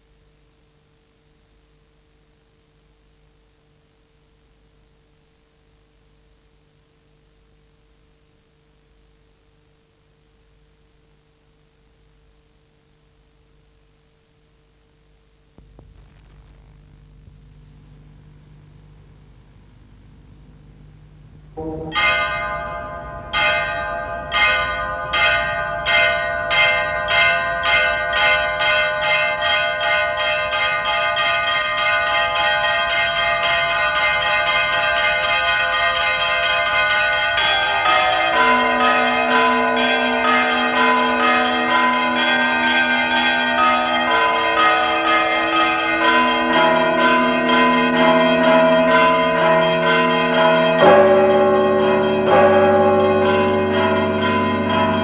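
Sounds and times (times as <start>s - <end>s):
church bells ringing: 21.6s - 55.0s.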